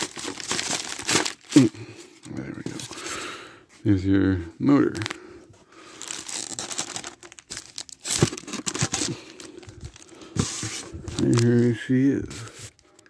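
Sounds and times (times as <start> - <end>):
plastic wrap crinkling: 0.0 - 3.1, 5.8 - 13.0.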